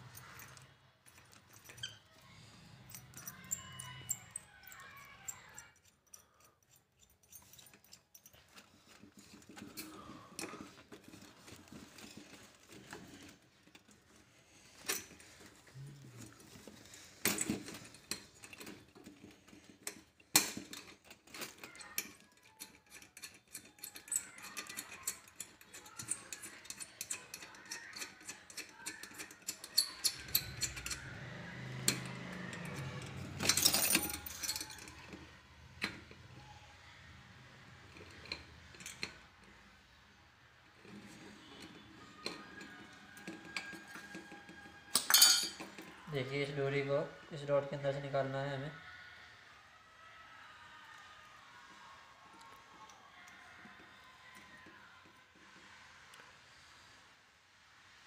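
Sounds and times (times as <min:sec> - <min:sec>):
small metal chain clinking: 0:00.0 - 0:36.5, 0:37.9 - 0:39.6, 0:40.8 - 0:46.1.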